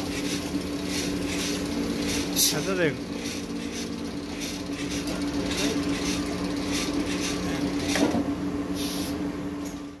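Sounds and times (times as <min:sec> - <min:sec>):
workshop machinery humming: 0:00.0 - 0:10.0
short hisses: 0:08.8 - 0:09.2.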